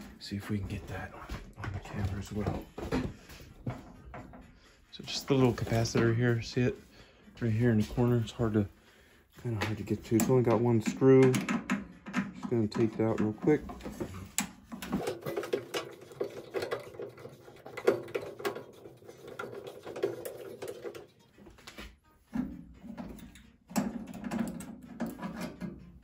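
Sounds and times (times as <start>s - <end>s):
clicks and metal rattles: 9.5s - 26.0s.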